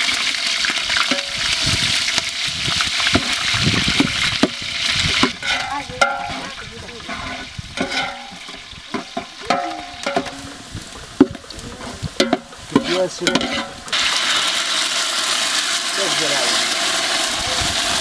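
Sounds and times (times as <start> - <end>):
loud steady sizzle: 0.0 - 18.0
onions frying in oil: 0.0 - 18.0
metal ladle scraping a pot: 3.0 - 10.6, 11.2 - 14.6.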